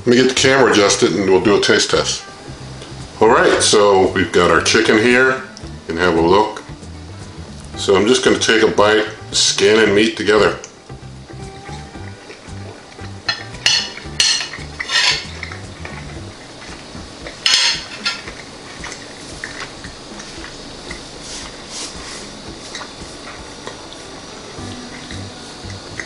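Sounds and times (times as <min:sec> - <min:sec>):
fork scraping on ceramic plate: 0:13.3 - 0:15.5.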